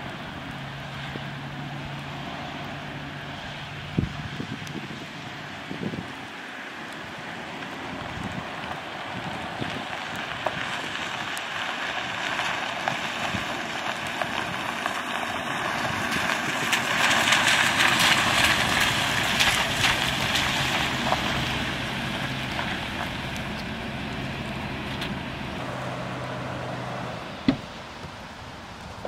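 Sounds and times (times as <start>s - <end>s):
low engine hum: 0.0s - 29.0s
steady rain hiss: 0.0s - 29.0s
tyres swishing on wet road: 0.0s - 29.0s.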